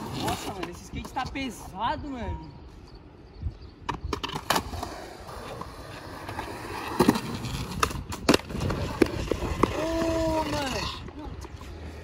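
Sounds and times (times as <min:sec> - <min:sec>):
skateboard wheels rolling: 0:00.0 - 0:01.8, 0:03.8 - 0:12.0
skateboard clacking on concrete: 0:03.9 - 0:11.9
skateboard clattering on concrete: 0:03.9 - 0:11.9.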